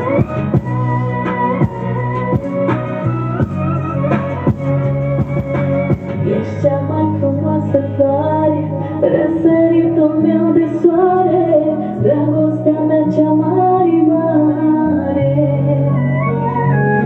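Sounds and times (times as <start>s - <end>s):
backing track with bass notes: 0.0s - 17.0s
woman singing into microphone: 5.8s - 17.0s.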